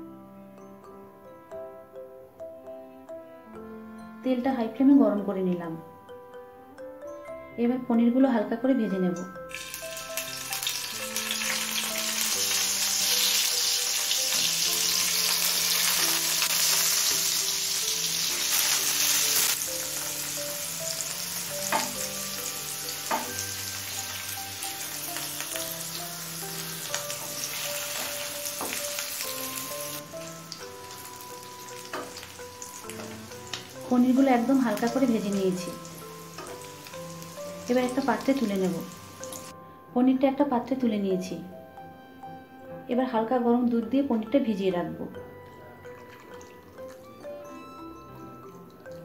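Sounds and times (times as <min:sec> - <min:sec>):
cheese sizzling in hot oil: 0:09.5 - 0:39.5.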